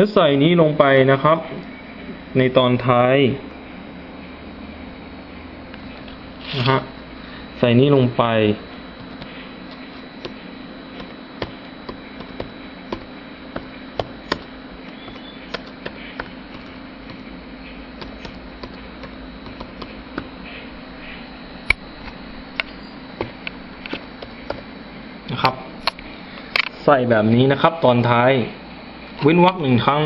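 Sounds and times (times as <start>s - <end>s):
low hum: 0.7s - 26.7s
keyboard key clicks: 13.6s - 17.2s.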